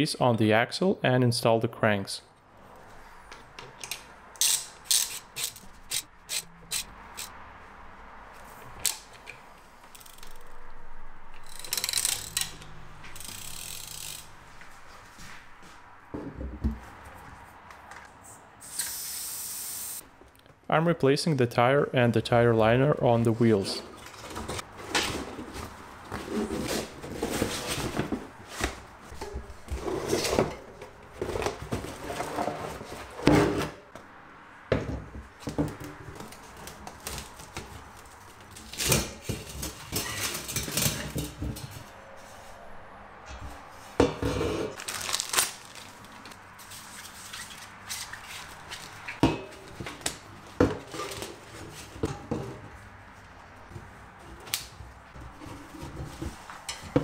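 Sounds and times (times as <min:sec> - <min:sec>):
rubber tyre scraping against rim: 0:24.0 - 0:33.8.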